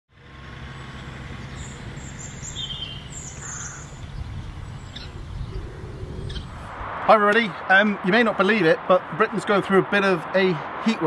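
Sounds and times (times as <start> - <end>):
birds chirping: 0.6 - 7.7
steady low rumble: 3.8 - 8.0.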